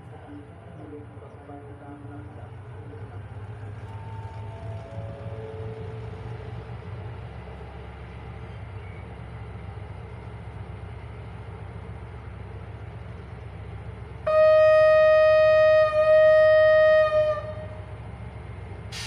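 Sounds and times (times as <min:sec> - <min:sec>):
idling locomotive rumble: 0:00.0 - 0:19.0
locomotive air horn blast: 0:14.3 - 0:18.0.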